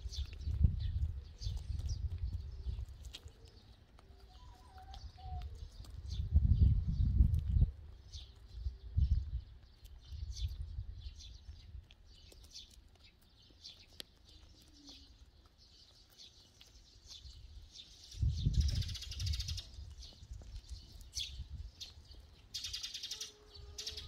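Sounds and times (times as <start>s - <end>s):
sparrows chirping: 0.0s - 24.0s.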